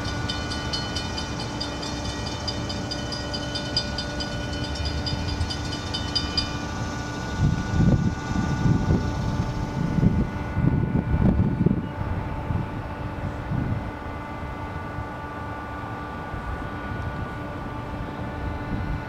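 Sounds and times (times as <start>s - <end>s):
steady high tones: 0.0s - 10.1s
freight train rumbling: 0.0s - 19.0s.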